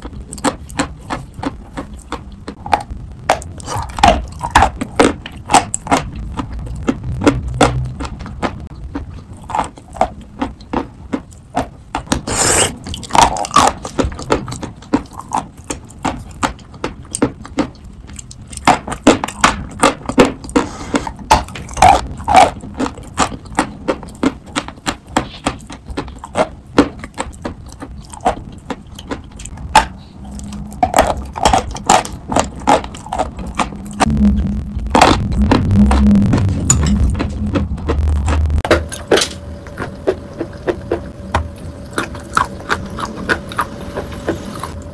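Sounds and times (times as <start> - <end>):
chalk crunching while chewed: 0.0 - 44.9.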